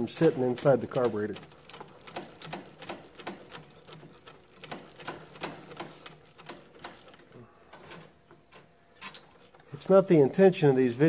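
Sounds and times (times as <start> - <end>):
ratchet wrench clicking: 0.0 - 7.3.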